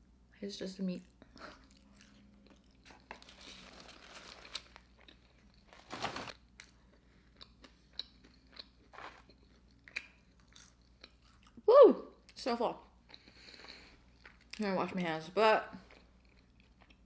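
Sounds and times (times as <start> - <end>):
chewing with soft crunching: 0.9 - 3.8, 6.3 - 11.6, 12.2 - 14.7, 15.7 - 17.0.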